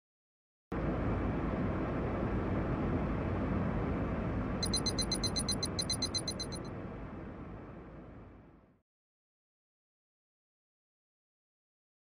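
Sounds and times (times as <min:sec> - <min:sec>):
steady rushing noise: 0:00.7 - 0:08.5
fast high-pitched ticking: 0:04.6 - 0:06.6.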